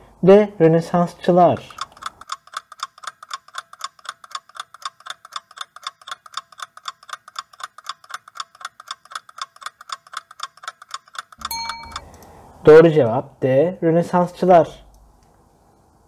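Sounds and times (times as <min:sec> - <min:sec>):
clock ticking: 0:01.5 - 0:12.2.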